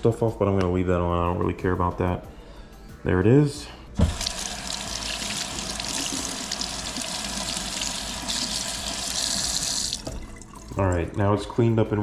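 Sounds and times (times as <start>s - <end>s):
tap water running: 4.0s - 11.5s.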